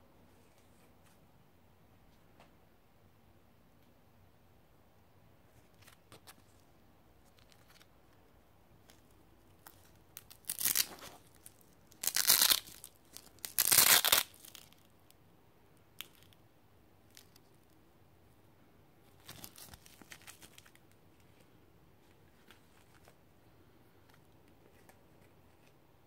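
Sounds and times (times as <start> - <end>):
velcro ripping apart: 9.8 - 14.9.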